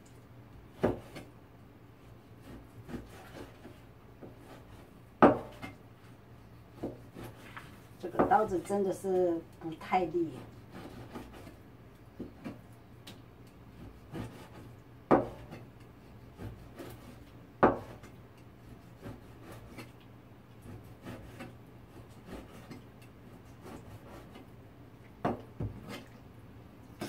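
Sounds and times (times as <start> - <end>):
cleaver chopping on plastic board: 0.8 - 1.3, 14.1 - 15.6, 17.6 - 18.0.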